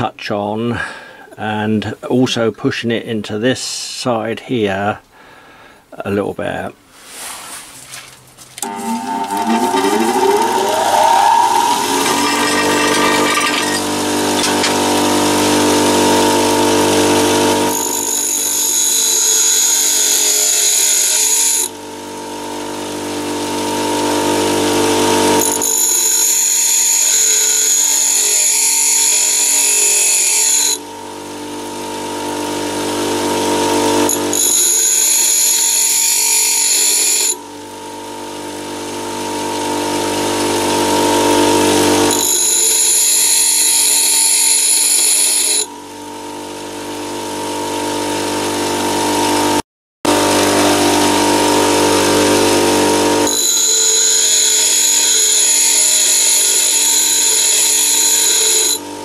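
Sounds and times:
drill bit grinding on wheel: 8.6s - 49.5s, 50.1s - 58.9s
bench grinder motor whine: 8.6s - 59.0s.

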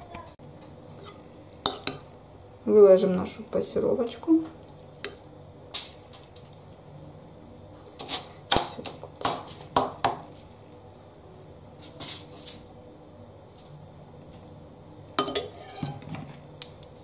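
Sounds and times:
metal spoon clinking and scraping: 11.8s - 12.7s, 15.2s - 16.1s.

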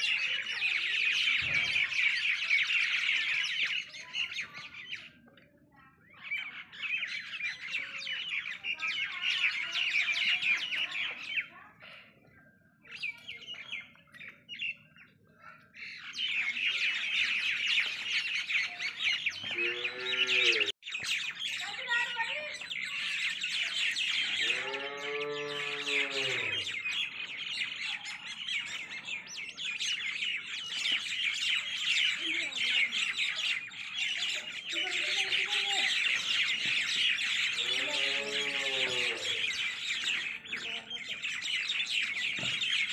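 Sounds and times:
small birds chirping: 0.0s - 42.9s
cattle mooing: 19.5s - 20.7s, 24.4s - 26.7s, 37.6s - 39.4s.

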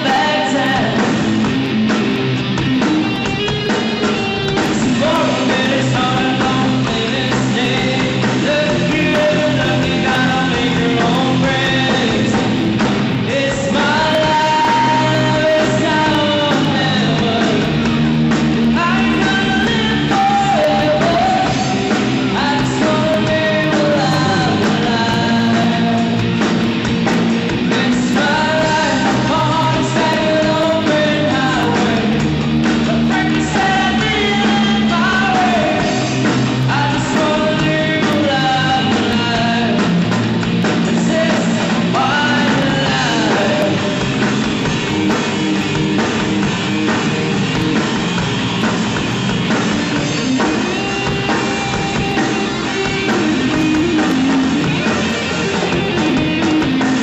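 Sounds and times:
person singing: 0.0s - 1.2s, 3.3s - 26.7s, 27.5s - 45.2s
live rock band playing: 0.0s - 57.0s.

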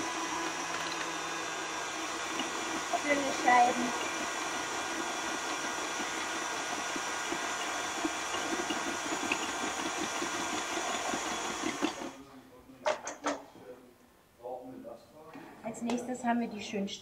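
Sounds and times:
stand mixer motor whirring: 0.0s - 12.2s.

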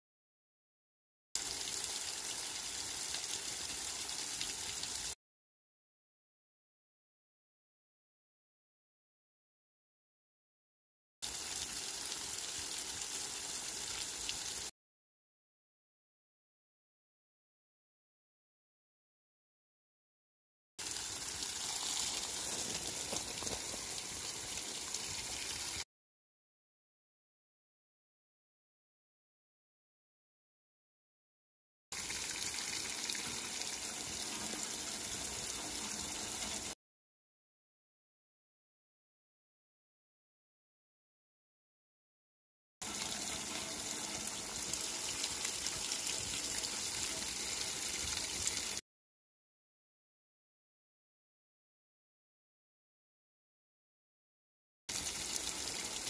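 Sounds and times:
water spray hitting leaves: 21.1s - 25.8s.

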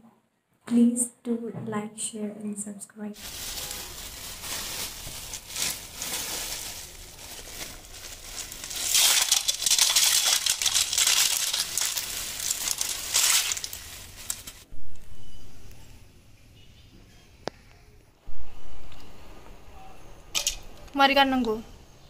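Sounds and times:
plastic bag crinkling: 3.2s - 14.7s
snail shells rattling: 3.3s - 14.7s.

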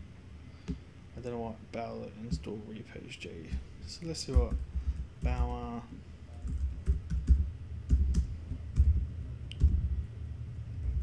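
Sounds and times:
typing on computer keyboard: 6.4s - 9.8s.

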